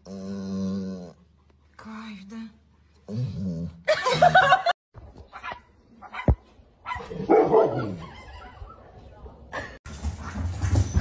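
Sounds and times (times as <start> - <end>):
dog barking: 5.3 - 8.6.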